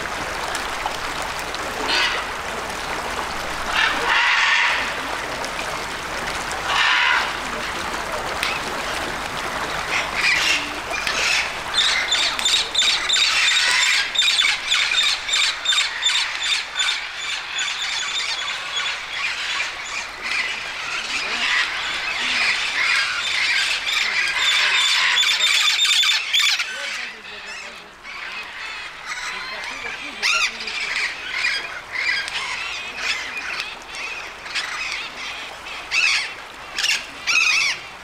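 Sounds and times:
parrots screeching and squawking: 1.9s - 2.2s, 3.7s - 4.9s, 6.7s - 7.4s, 10.0s - 29.6s, 35.9s - 37.8s.

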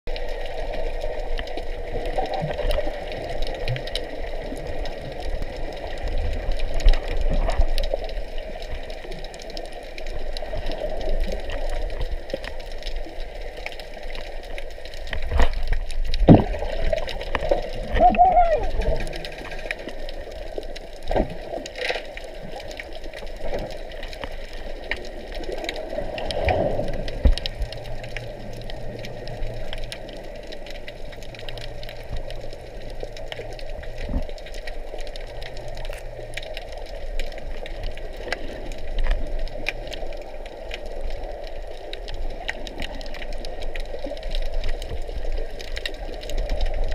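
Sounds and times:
muffled underwater hum: 0.2s - 46.9s
short clicks and crackles: 18.8s - 46.9s.

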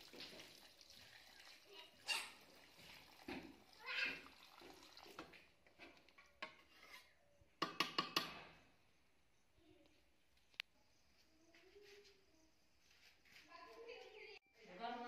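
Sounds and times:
water splashing into pan: 0.0s - 5.5s.

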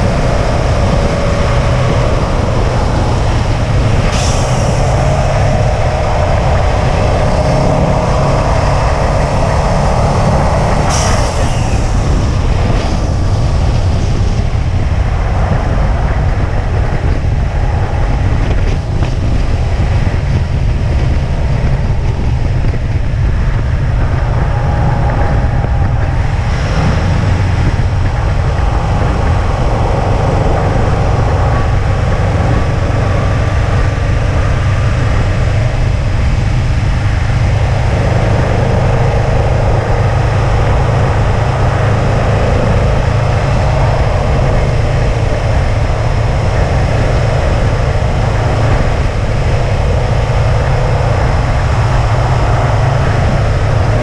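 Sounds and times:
car engine running: 0.0s - 54.0s
tyre and wind noise: 0.0s - 54.0s.

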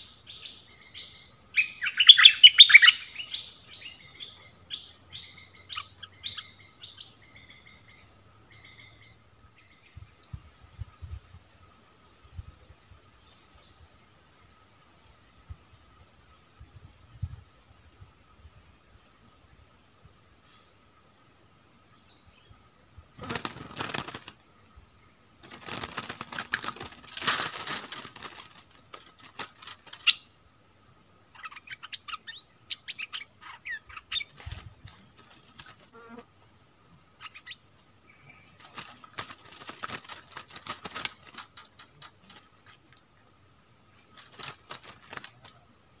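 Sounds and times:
bird chirps: 0.0s - 10.2s, 29.3s - 30.4s, 31.3s - 35.7s, 37.2s - 38.8s
bird wings flapping: 23.2s - 24.4s, 25.4s - 30.2s, 34.4s - 35.9s, 38.6s - 42.8s, 44.1s - 45.6s.

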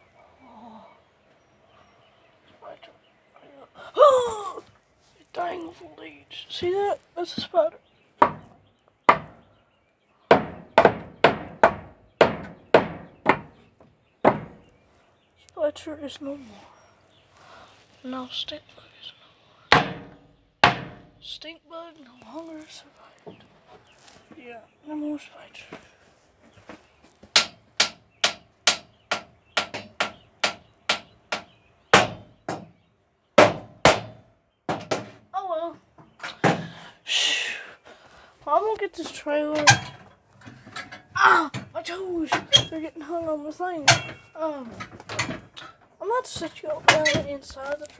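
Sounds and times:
sharp knocks: 8.2s - 9.4s, 10.3s - 14.7s, 19.7s - 21.2s, 27.3s - 32.8s, 33.4s - 35.3s, 43.8s - 45.8s.

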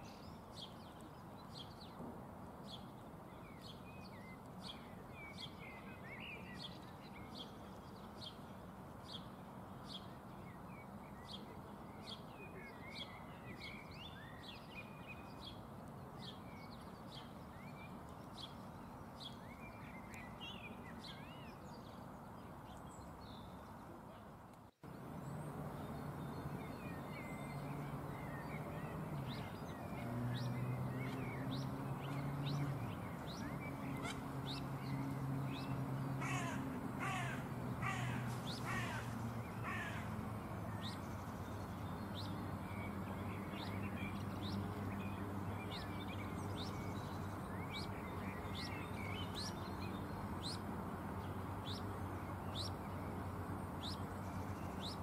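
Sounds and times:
harsh crow-like calls: 36.2s - 40.1s.

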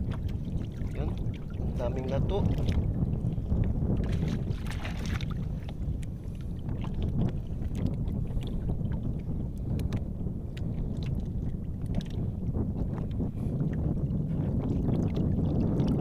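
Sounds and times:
small splashes and drips: 0.0s - 2.9s, 4.0s - 5.8s
water lapping against boat: 0.0s - 16.0s
wind on microphone: 0.0s - 16.0s.

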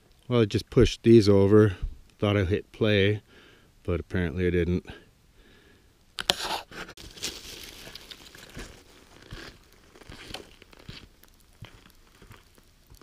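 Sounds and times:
boots crunching on snow: 7.0s - 13.0s.

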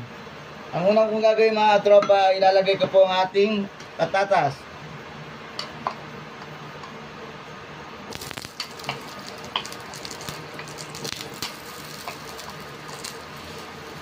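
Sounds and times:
oil sizzling and popping: 8.1s - 14.0s.

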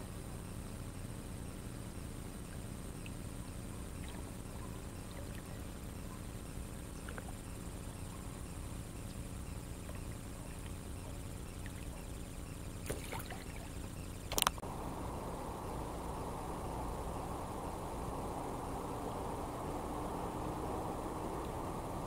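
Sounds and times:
steady low water noise: 0.0s - 22.0s
water drips and trickles: 12.8s - 13.9s.

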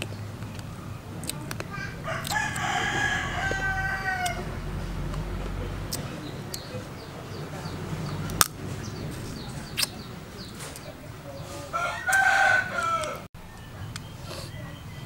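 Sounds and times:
crab shell cracking: 1.2s - 2.7s
rooster crowing: 1.7s - 4.8s, 11.4s - 13.3s.

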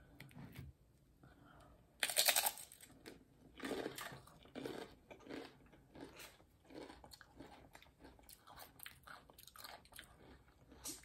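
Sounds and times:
crunchy chewing: 2.9s - 11.0s.

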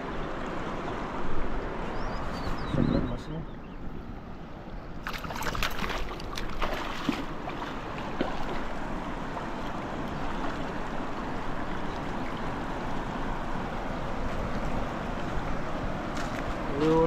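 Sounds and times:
water splashes and knocks: 5.0s - 11.0s.

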